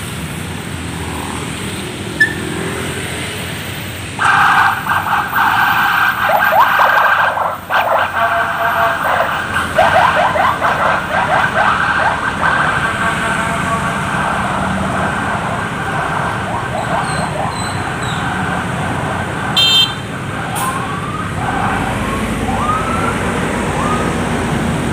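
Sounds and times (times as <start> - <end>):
heavy city traffic: 0.0 - 24.9
short high beep: 2.2 - 2.5
sirens yelping and whooping: 4.2 - 24.9.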